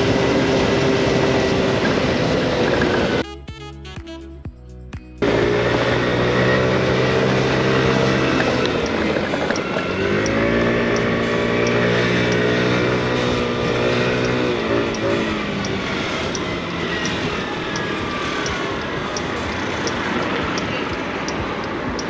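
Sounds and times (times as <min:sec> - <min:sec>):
motor scooter engine accelerating: 0:00.0 - 0:03.2, 0:05.2 - 0:22.0
wind and road noise: 0:00.0 - 0:03.2, 0:05.2 - 0:22.0
faint repeating tick: 0:17.8 - 0:22.0.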